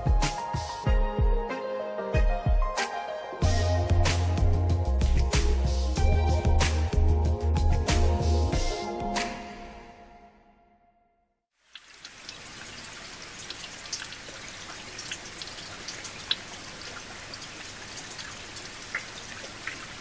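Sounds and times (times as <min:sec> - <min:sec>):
rain-like patter: 0:11.6 - 0:20.0
drip-like ticks: 0:11.7 - 0:20.0.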